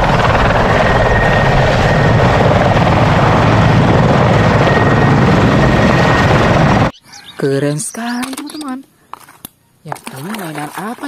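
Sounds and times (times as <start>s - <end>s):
helicopter rotor chop: 0.0s - 6.9s
helicopter turbine whine: 0.0s - 9.0s.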